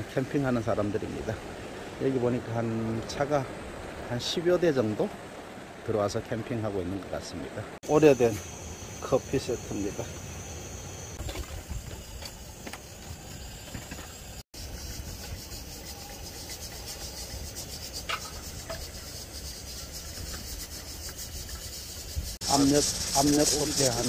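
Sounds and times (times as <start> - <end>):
low hiss: 14.2 - 24.0.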